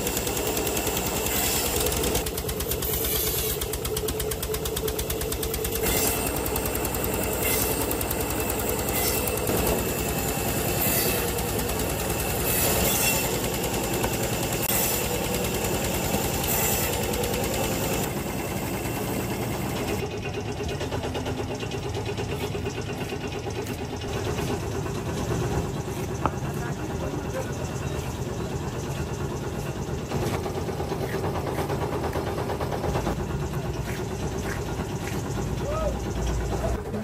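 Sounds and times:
band saw cutting logs: 0.0s - 20.1s.

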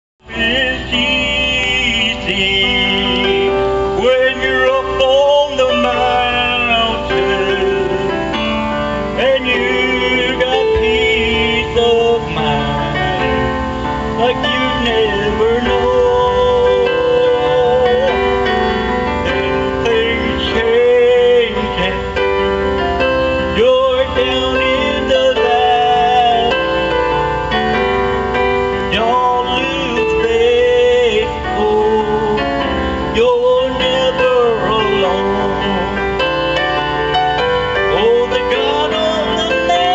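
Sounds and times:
man singing through pa: 0.2s - 27.3s, 28.8s - 36.8s, 37.7s - 39.9s
electronic keyboard chords: 0.2s - 39.9s
instrumental accompaniment: 0.2s - 39.9s.

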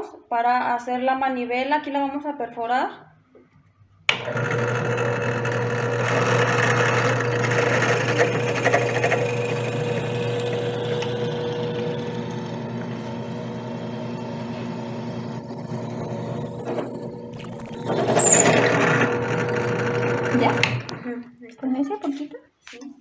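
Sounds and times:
drill bit cutting wood: 4.1s - 21.0s
drill press motor hum: 4.1s - 21.1s.

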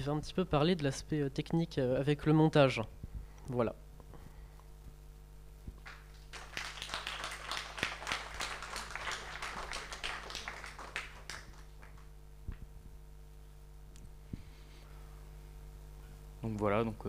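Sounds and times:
small audience applauding: 5.8s - 12.6s.

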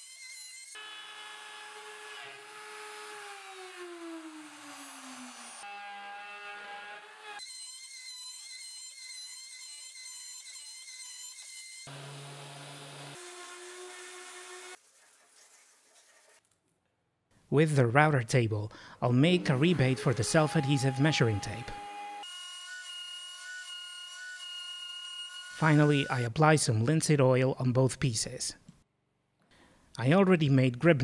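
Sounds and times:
router motor whining: 0.1s - 14.8s, 19.3s - 26.0s.

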